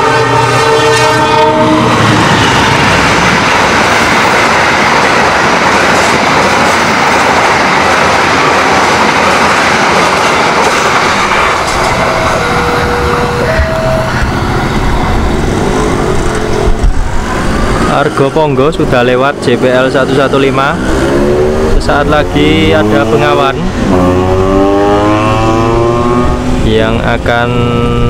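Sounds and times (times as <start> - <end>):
train horn: 0.0 - 2.1, 11.6 - 15.4, 16.1 - 17.0, 27.6 - 28.0
train wheels clacking on rails: 1.8 - 25.8.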